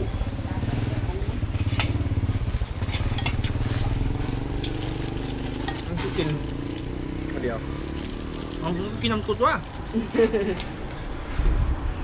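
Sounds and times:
small engine idling: 0.0s - 9.2s
spoon and chopsticks clinking bowl: 1.5s - 7.5s.

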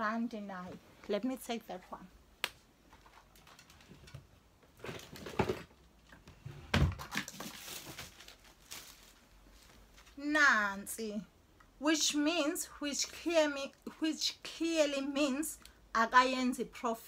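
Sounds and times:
rustling and scraping of items: 2.8s - 10.3s.

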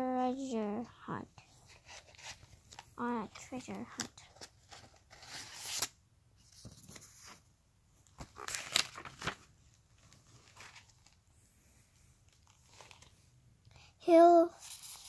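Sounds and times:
book pages rustling: 1.4s - 11.3s, 12.0s - 13.3s.

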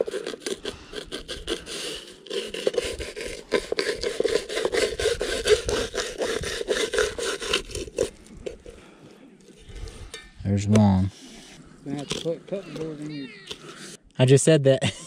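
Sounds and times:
knife scraping fish skin: 0.0s - 8.7s.

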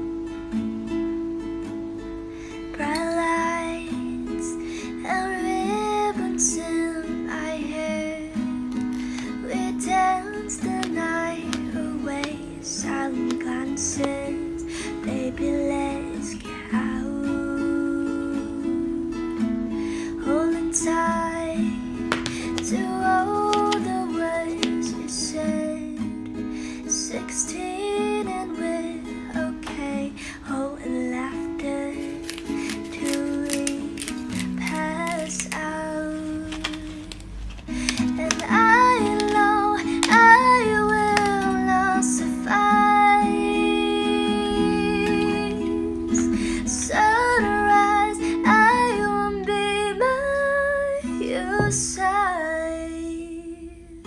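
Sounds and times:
strummed guitar: 0.0s - 54.0s
woman singing: 2.7s - 54.0s.

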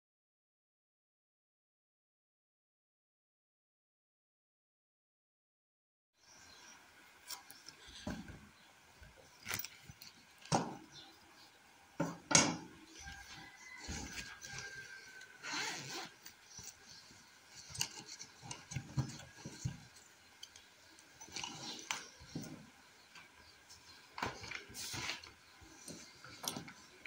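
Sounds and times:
rummaging in pencil case: 13.3s - 19.9s.

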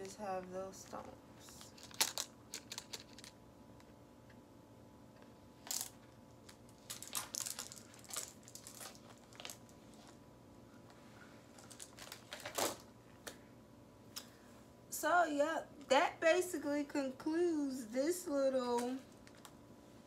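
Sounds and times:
clicks and rustles of packaging: 0.9s - 3.4s, 5.6s - 10.2s, 11.5s - 12.9s, 18.8s - 19.6s.

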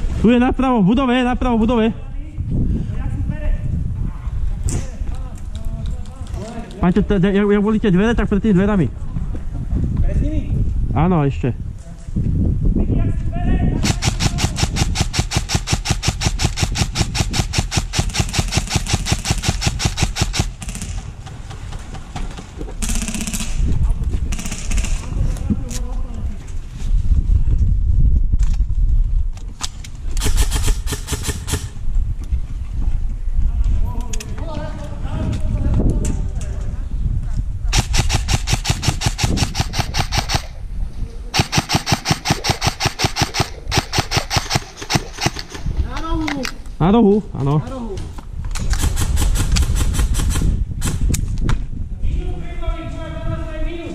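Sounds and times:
airsoft rifle full-auto burst: 13.8s - 21.1s, 22.8s - 23.6s, 30.2s - 31.8s, 37.7s - 40.6s, 41.4s - 45.7s.

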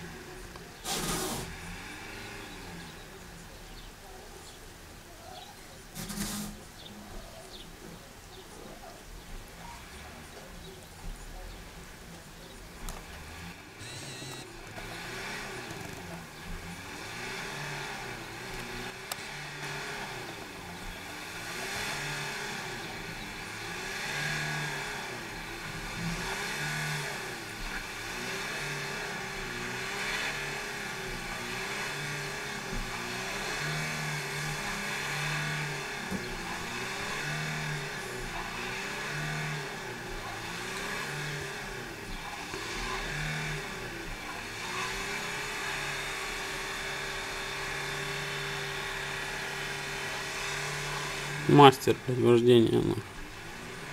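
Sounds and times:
van engine revving: 0.0s - 5.0s, 5.8s - 53.9s.

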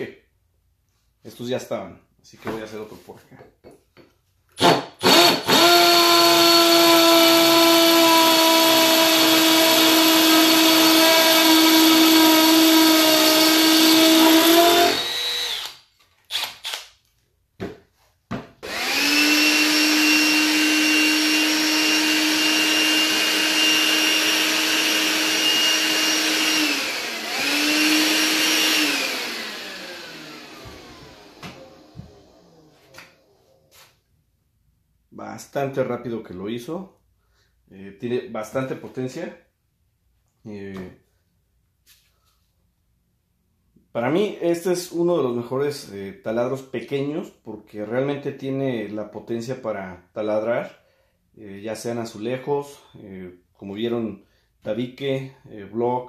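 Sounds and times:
cordless tool high whine: 4.6s - 16.8s, 18.6s - 33.7s
hammer drill drilling into brick: 4.6s - 16.9s, 18.6s - 32.4s.

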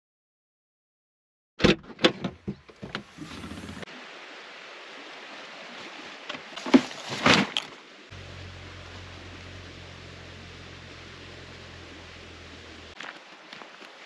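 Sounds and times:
sharp knocks and thumps: 1.6s - 3.8s
steady outdoor hiss: 2.6s - 14.0s
low steady hum: 8.1s - 13.0s.

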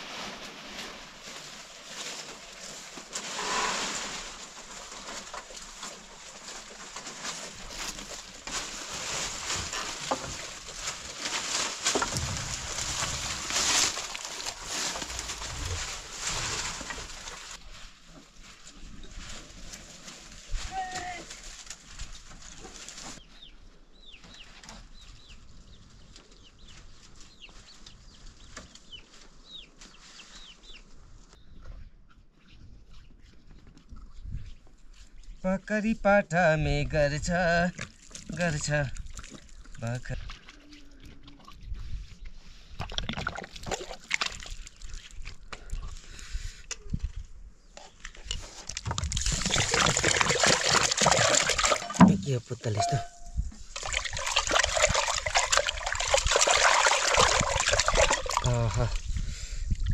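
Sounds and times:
water sloshing and splashing: 37.7s - 41.7s, 42.8s - 45.4s, 48.6s - 53.0s, 53.6s - 58.7s.

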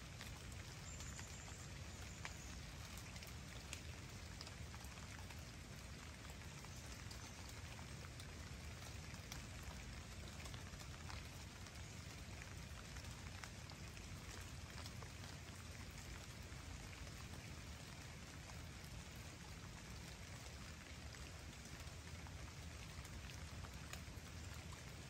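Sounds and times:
individual raindrops ticking: 0.0s - 25.0s
light rain falling on lake: 0.0s - 25.0s.

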